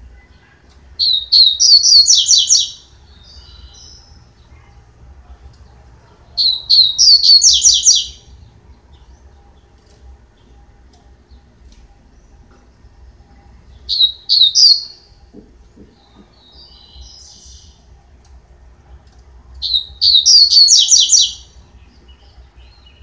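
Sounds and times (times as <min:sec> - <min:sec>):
bird whistled song: 0:01.0 - 0:04.1, 0:06.4 - 0:08.3, 0:13.9 - 0:15.1, 0:19.6 - 0:23.0.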